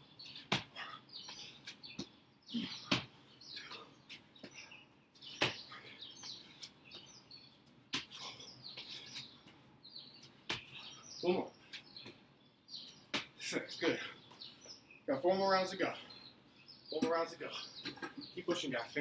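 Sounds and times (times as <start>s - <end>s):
small birds chirping: 0.0s - 19.0s
thuds on a brick patio: 0.4s - 7.1s.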